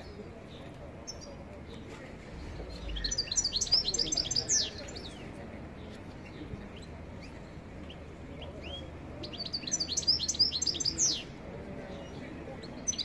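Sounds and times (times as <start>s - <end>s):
goldfinch singing: 2.7s - 5.2s.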